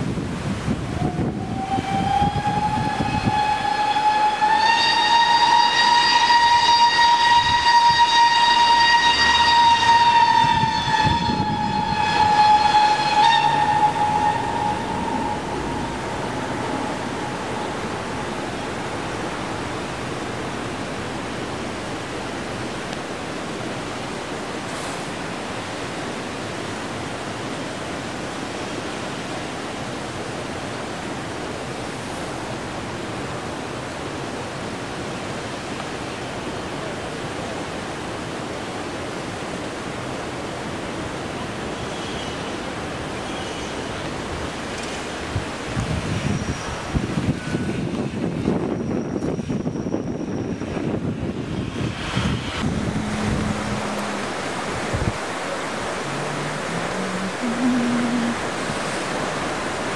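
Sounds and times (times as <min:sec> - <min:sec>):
steady rushing noise: 0:00.0 - 0:41.9, 0:42.5 - 0:59.9
steam locomotive whistle: 0:01.0 - 0:19.2, 0:52.5 - 0:54.8, 0:56.1 - 0:58.4.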